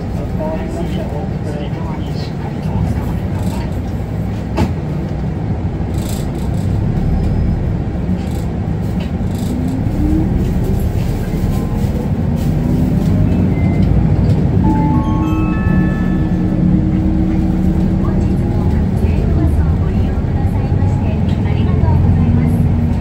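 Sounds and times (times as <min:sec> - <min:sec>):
bus diesel and road rumble: 0:00.0 - 0:23.0
rising engine whine: 0:12.5 - 0:21.2
electronic chime tones: 0:14.6 - 0:17.1.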